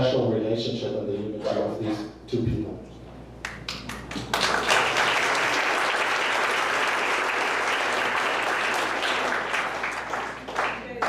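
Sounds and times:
audience applauding: 3.4s - 11.0s.

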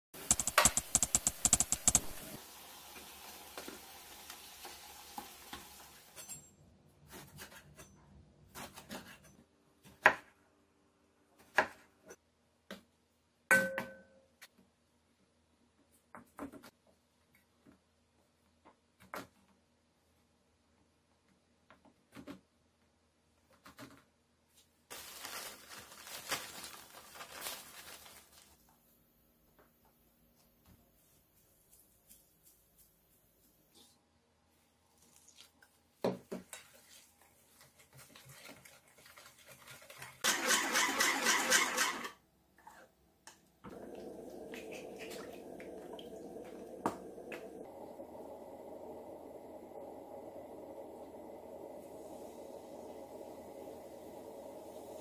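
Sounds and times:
food frying in oil: 0.2s - 6.2s, 43.7s - 47.8s.

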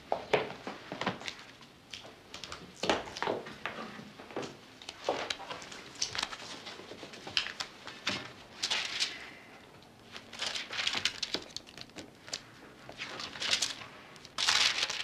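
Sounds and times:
paper rustling: 4.9s - 9.2s, 10.0s - 15.0s.

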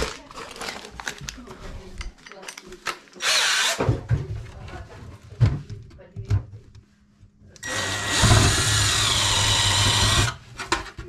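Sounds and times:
electric drill running: 3.2s - 3.8s, 7.6s - 10.4s.

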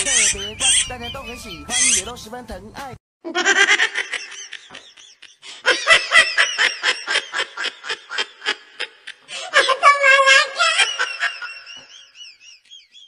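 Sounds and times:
person laughing: 3.2s - 12.8s.

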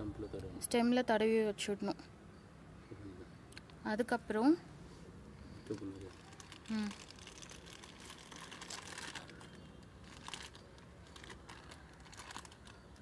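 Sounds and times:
plastic bag crinkling: 5.6s - 13.0s.

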